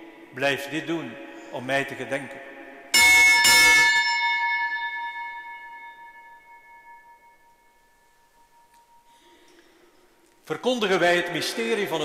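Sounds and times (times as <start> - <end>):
altar bell ringing: 2.9 - 10.2.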